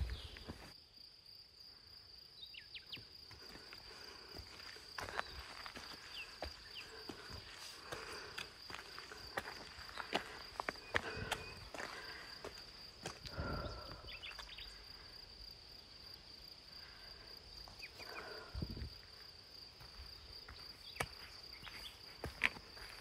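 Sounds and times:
boot footsteps on rocky trail: 0:00.0 - 0:00.8, 0:02.9 - 0:14.6, 0:17.7 - 0:23.0.

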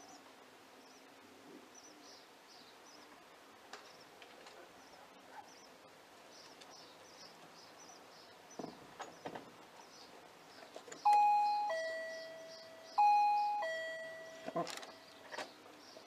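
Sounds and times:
birds chirping faintly: 0:00.0 - 0:16.0
two-note doorbell chime: 0:11.1 - 0:15.2.

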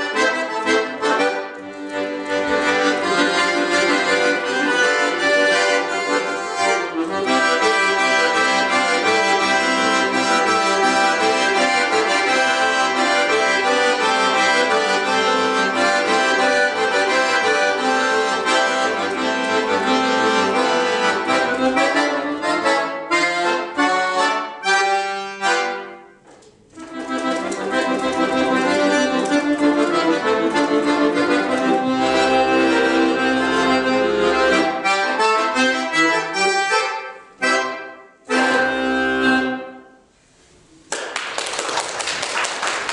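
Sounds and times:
piano accordion playing: 0:00.0 - 0:40.4.

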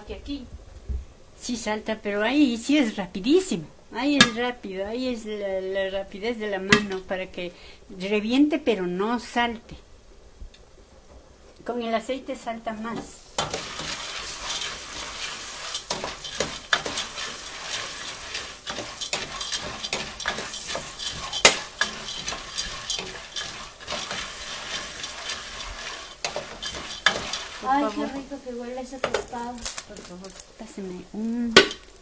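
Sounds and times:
popcorn popping: 0:04.2 - 0:04.4, 0:13.0 - 0:32.0
oil sizzling in a pot: 0:12.7 - 0:32.0.

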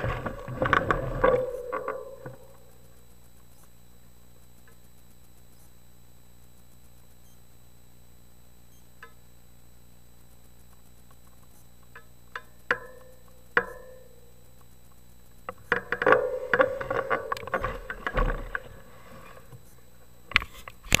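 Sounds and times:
bike clicking and rattling: 0:00.0 - 0:03.5, 0:10.8 - 0:19.7.

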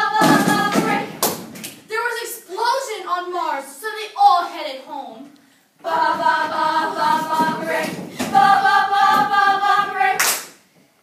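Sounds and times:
young voices singing a cappella: 0:00.0 - 0:01.3, 0:05.8 - 0:10.6.

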